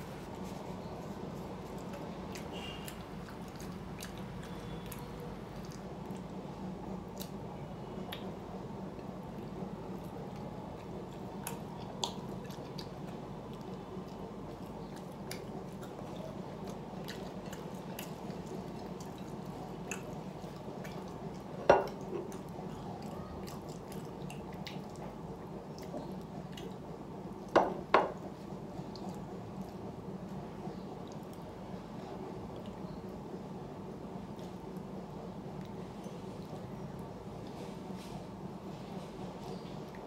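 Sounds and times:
steady low hum: 0.0 - 40.0
wet chewing: 0.4 - 6.4, 9.0 - 27.5.

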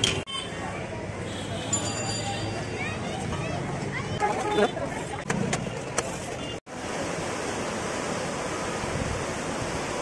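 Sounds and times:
street bustle: 0.0 - 10.0
river rushing around bridge pier: 6.7 - 10.0.

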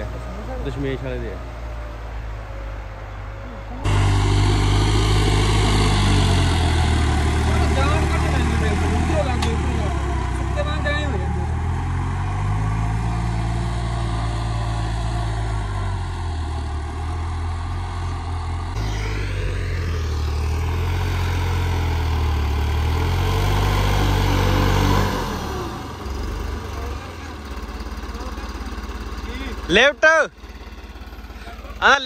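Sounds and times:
tractor diesel engine under load: 0.0 - 32.0.

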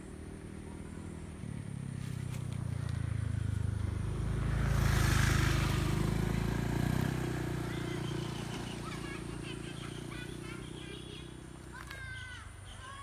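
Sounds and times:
scooter engine running: 0.0 - 13.0
bird chirps: 7.6 - 13.0.

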